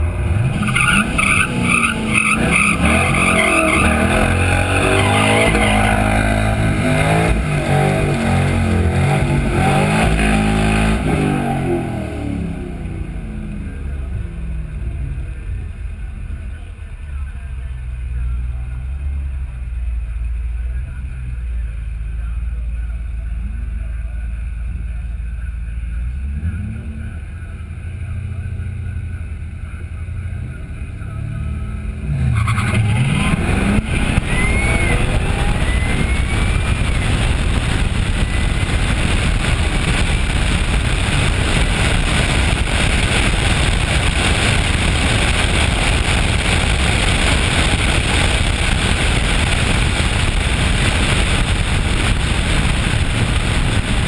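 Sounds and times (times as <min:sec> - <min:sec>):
car engine revving hard: 0:00.0 - 0:13.8, 0:31.8 - 0:54.0
car engine idling: 0:12.3 - 0:54.0
wind noise: 0:33.1 - 0:54.0.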